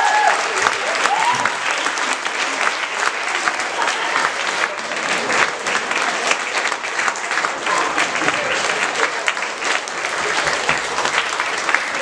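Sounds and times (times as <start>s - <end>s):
audience clapping: 0.0s - 12.0s.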